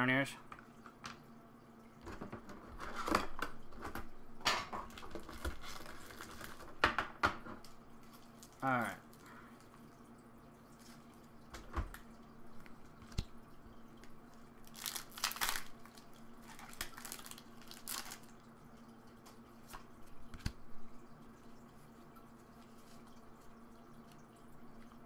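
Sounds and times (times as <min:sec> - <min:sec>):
foil wrapper crinkling and tearing: 0:04.9 - 0:06.8, 0:14.6 - 0:18.3.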